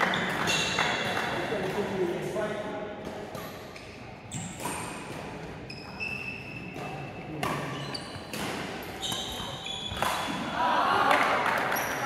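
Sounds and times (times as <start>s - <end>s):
racket hitting shuttlecock: 3.0s - 5.6s, 6.6s - 12.0s
shoes squeaking on court: 3.4s - 10.4s.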